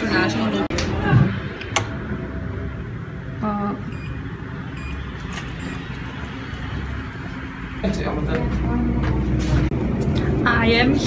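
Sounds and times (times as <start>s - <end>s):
short electronic beeps: 3.9s - 5.9s.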